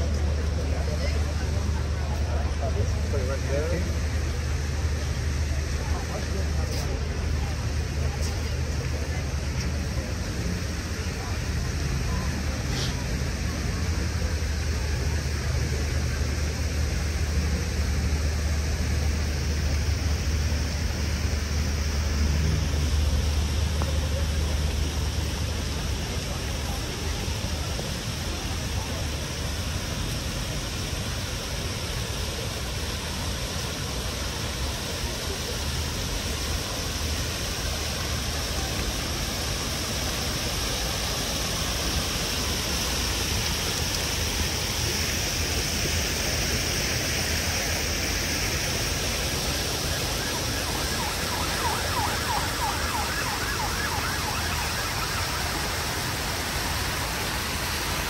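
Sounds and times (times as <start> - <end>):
traffic rumble and hiss: 0.0 - 58.0
emergency vehicle siren wailing: 49.1 - 57.2.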